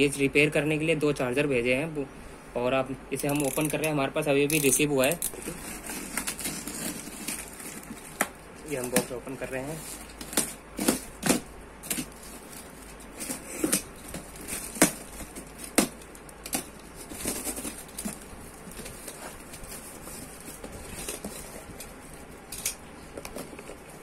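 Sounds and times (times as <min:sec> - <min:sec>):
cardboard tearing: 0:04.6 - 0:21.9.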